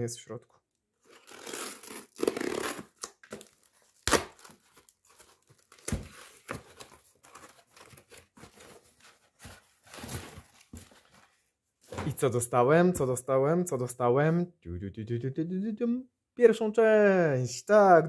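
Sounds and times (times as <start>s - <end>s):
cardboard and tape ripping: 1.0s - 10.9s
cardboard crinkling: 1.0s - 11.5s.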